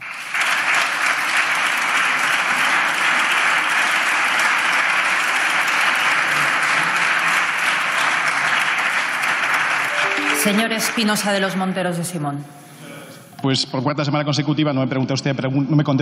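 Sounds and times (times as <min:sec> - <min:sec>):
people clapping: 0:00.0 - 0:11.9.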